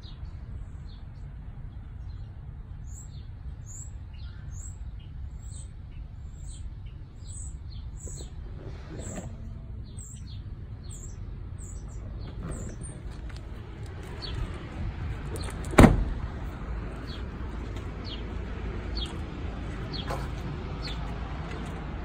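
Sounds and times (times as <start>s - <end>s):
steady low rumble: 0.0s - 22.0s
bird chirping: 2.0s - 13.4s
vehicle door slamming: 12.2s - 16.6s.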